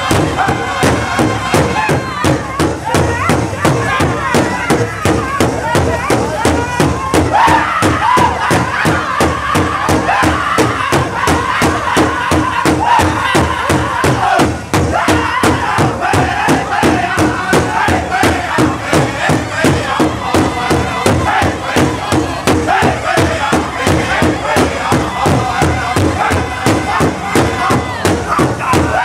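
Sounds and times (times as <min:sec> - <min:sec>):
big drum steady beat: 0:00.0 - 0:29.0
men singing high wavering chant: 0:07.4 - 0:29.0.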